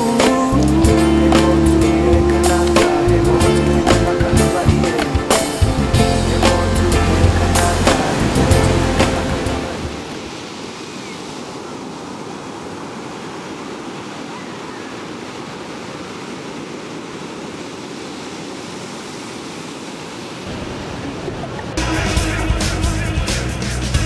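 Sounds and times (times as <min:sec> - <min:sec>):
song playing: 0:00.0 - 0:10.1, 0:21.8 - 0:24.0
breaking waves: 0:00.0 - 0:23.0.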